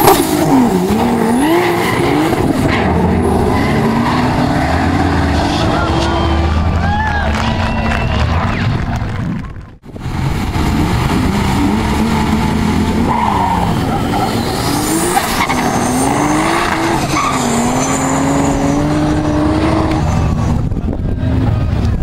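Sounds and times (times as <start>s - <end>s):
car engine accelerating through gears: 0.0s - 9.2s, 10.2s - 22.0s
tyre squeal: 5.4s - 6.6s, 13.1s - 20.6s.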